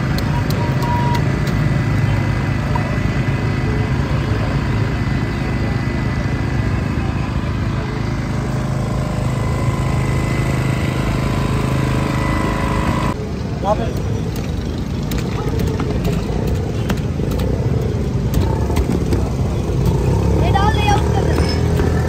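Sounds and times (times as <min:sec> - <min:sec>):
engine droning: 0:00.0 - 0:22.0.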